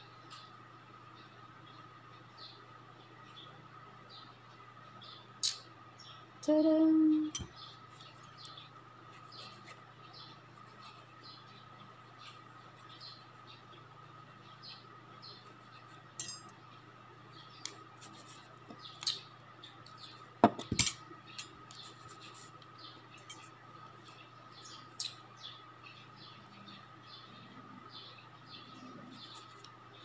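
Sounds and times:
faint steady hum: 0:00.0 - 0:30.0
metal tools clicking on fingernails: 0:05.4 - 0:05.7, 0:16.2 - 0:16.6.

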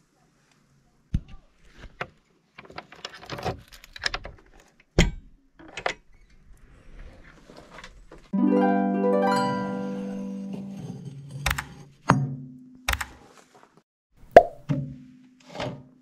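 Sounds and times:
plucked string music: 0:08.4 - 0:11.0.

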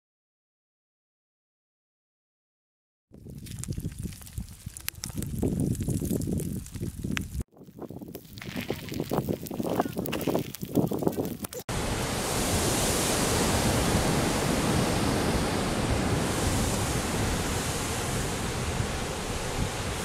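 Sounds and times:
scattered crackles and knocks: 0:03.2 - 0:11.7
lava pouring into sea: 0:03.2 - 0:20.0
surf: 0:11.5 - 0:20.0.

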